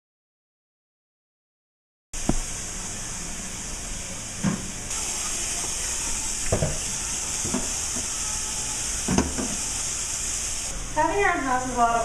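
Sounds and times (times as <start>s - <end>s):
dishes knocking in sink: 6.4s - 8.1s, 9.0s - 9.6s
tap running into sink: 6.4s - 8.1s, 9.0s - 9.7s.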